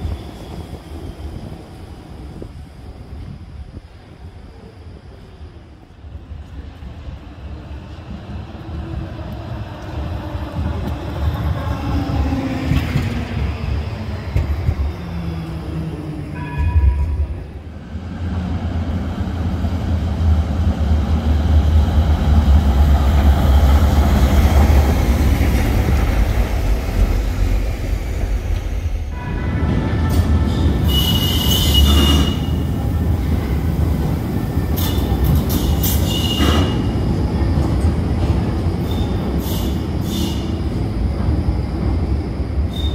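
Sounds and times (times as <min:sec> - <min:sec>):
steel wheels rumbling on rail: 0:00.0 - 0:42.9
tram wheels squealing: 0:28.4 - 0:33.7, 0:34.7 - 0:37.2, 0:38.4 - 0:41.0, 0:42.6 - 0:42.9.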